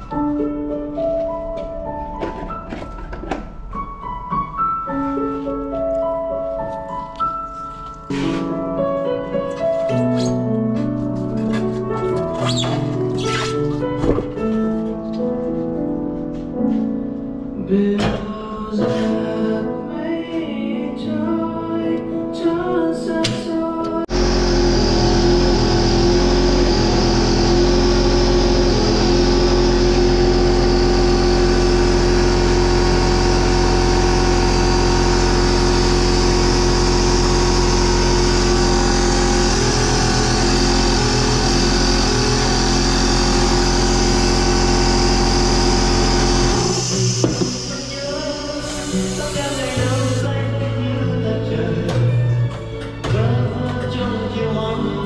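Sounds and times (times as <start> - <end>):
music: 0.0 - 42.4, 45.4 - 55.0
air compressor running: 24.1 - 50.3.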